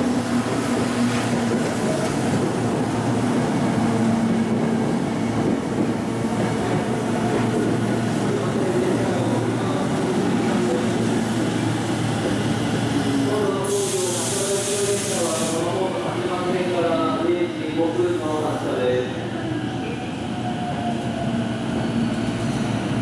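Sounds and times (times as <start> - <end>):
train wheels rolling on rails: 0.0 - 15.6.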